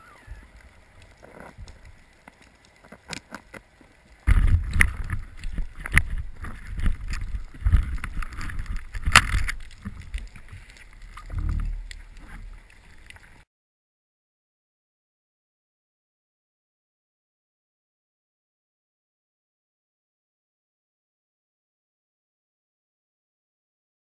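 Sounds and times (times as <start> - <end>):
muffled underwater rumble: 0.0 - 3.1, 4.0 - 13.4
sharp clicks and knocks: 4.3 - 12.4.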